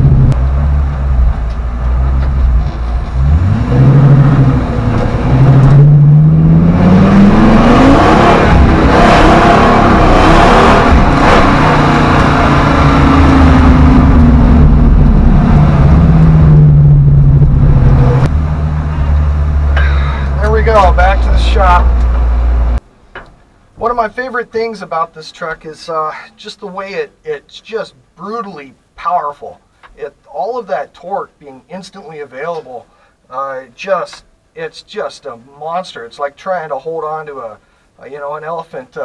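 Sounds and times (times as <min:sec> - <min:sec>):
pickup engine accelerating hard: 0:00.0 - 0:22.8.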